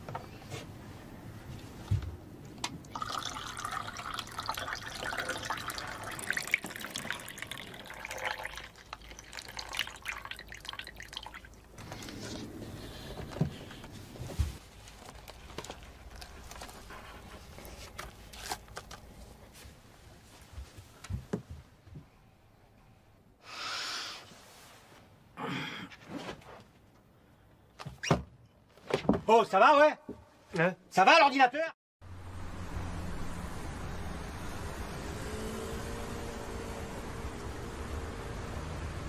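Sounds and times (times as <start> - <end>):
liquid gurgling and dripping: 2.8 - 11.8.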